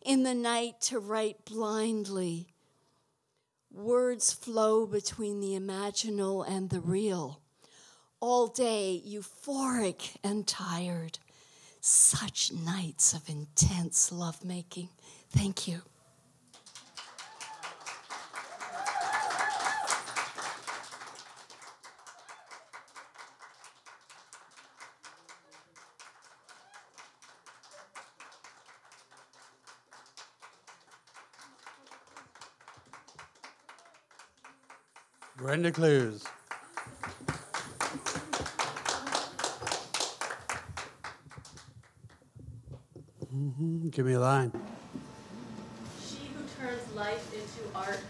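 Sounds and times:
audience applauding: 16.5 - 41.9
person whooping: 17.2 - 17.8, 18.4 - 20.2, 26.5 - 27.0.

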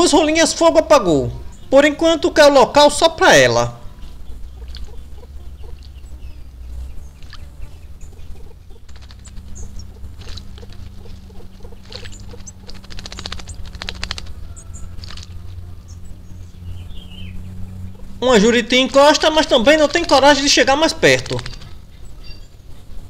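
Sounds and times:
steady low hum: 0.0 - 23.0
faint high bird chirps: 3.7 - 18.4, 21.3 - 22.9.

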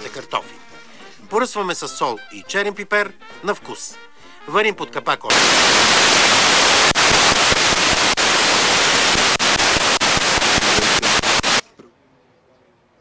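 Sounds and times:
static crackling: 5.3 - 11.6
tv static hiss: 5.3 - 11.6.

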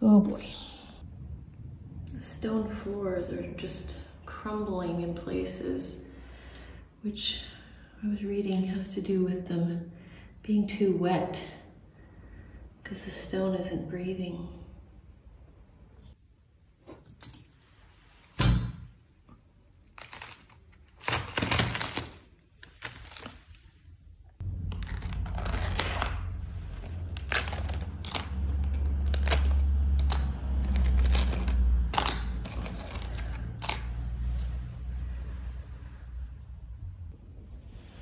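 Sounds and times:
steady low rumble: 0.0 - 5.2, 24.1 - 38.0
scraping crackling and tearing: 19.6 - 34.3.

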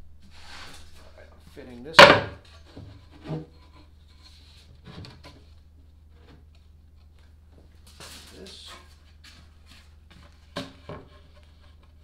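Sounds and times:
wooden knock: 2.0 - 2.4.

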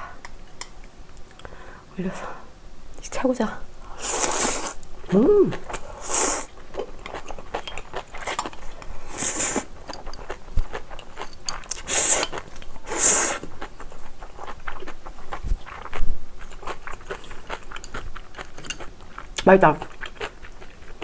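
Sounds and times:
person slurping noodles: 4.0 - 4.8, 5.5 - 6.5, 9.1 - 9.7, 11.7 - 13.5
wet chewing: 4.1 - 21.0.

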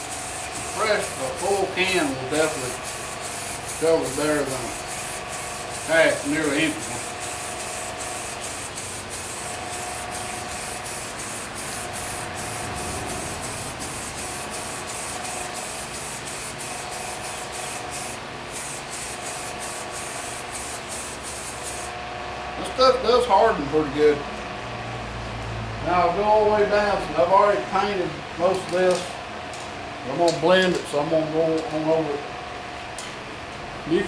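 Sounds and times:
aerosol spray can hissing: 0.0 - 22.0.

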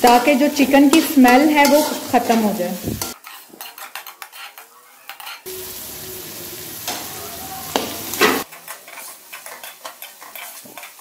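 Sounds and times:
metal spatula scraping a pan: 0.0 - 5.8, 7.7 - 11.0
food sizzling: 0.0 - 11.0.

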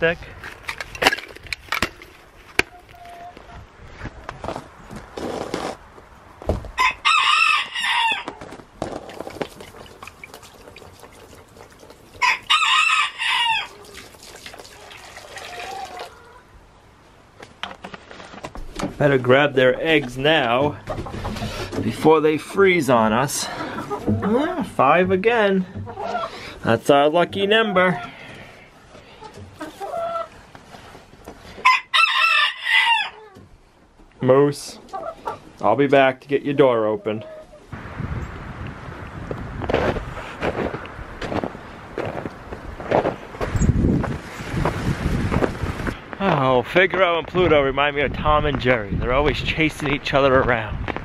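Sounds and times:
rooster crowing: 6.8 - 8.3, 12.2 - 13.8, 31.6 - 33.2
hens clucking softly: 25.7 - 26.5, 29.1 - 30.4, 34.8 - 35.5.

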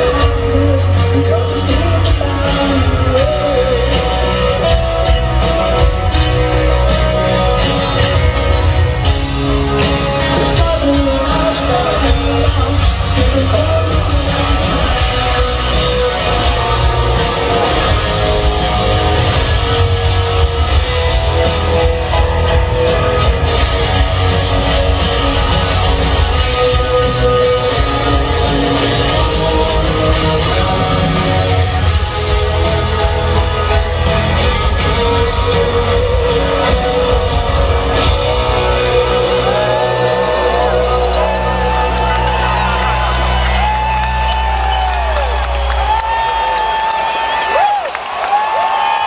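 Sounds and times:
man singing lead vocal: 0.0 - 5.7, 9.8 - 19.8, 21.8 - 42.8
piano: 0.0 - 49.0
rock band playing: 0.0 - 49.0.

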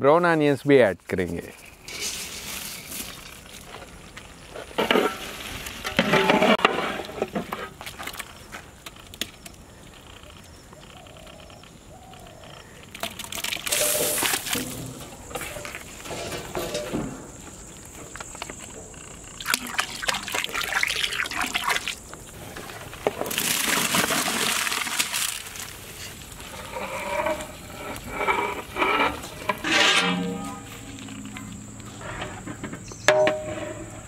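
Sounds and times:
rice pouring into boiling water: 23.3 - 25.6.

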